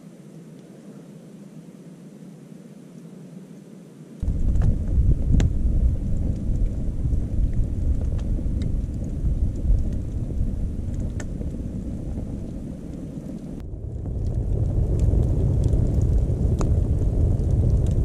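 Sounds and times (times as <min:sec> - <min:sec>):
burning wood crackling: 0:04.2 - 0:18.0
fire low rumble: 0:04.2 - 0:18.0.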